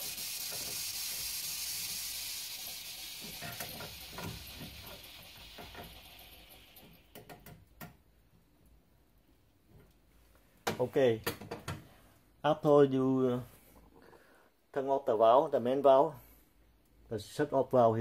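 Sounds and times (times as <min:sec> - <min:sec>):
steam hissing: 0:00.0 - 0:07.2.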